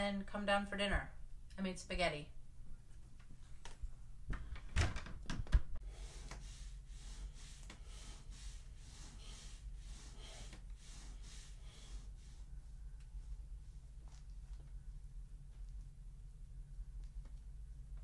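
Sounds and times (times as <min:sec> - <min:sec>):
quick rhythmic breathing: 0:05.8 - 0:14.0.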